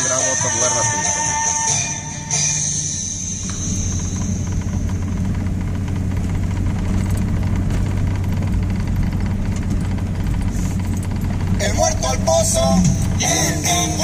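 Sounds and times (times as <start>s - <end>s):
car engine and road rumble: 0.0s - 14.0s
fine rattling: 2.7s - 13.4s.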